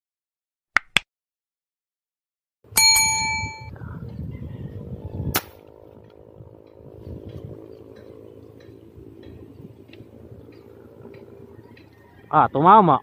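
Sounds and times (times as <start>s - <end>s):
bell-like chime: 2.8s - 3.7s
air gun firing crack: 5.3s - 5.6s.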